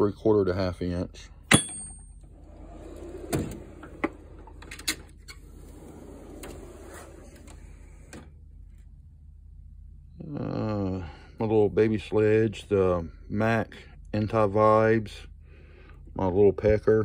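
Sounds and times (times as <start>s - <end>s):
metal drawers sliding: 2.3s - 8.3s.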